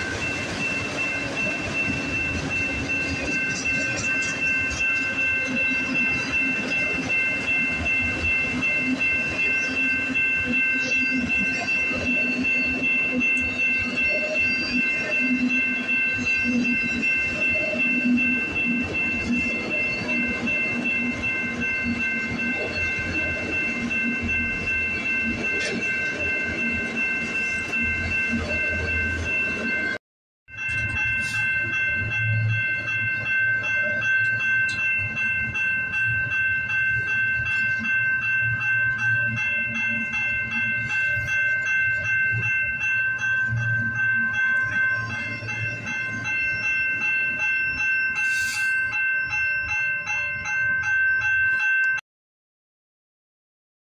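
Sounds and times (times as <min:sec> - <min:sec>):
freight train rumbling past: 0:00.0 - 0:30.0
wheels clattering on rail joints: 0:00.0 - 0:30.0
crossing warning bell ringing: 0:00.0 - 0:52.0.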